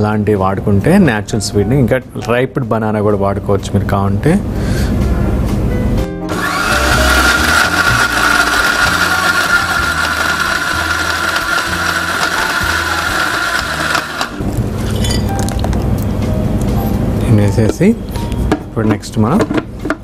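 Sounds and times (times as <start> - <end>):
mixer grinder whining: 6.3 - 14.8.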